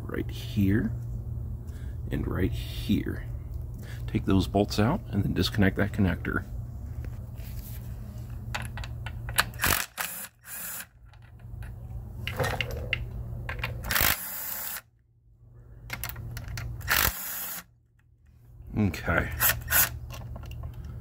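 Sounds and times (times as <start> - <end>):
impact driver bursts: 13.8 - 14.8, 16.8 - 17.7.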